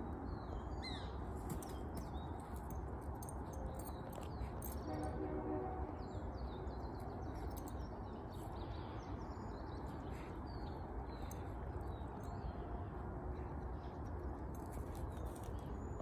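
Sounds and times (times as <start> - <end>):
small birds chirping: 6.1 - 16.0.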